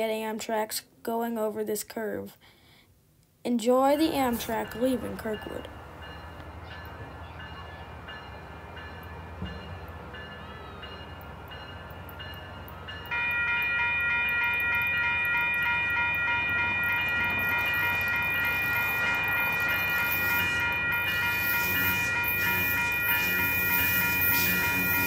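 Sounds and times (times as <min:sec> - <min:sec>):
train running noise: 0:03.8 - 0:25.0
train air horn chord: 0:19.0 - 0:25.0.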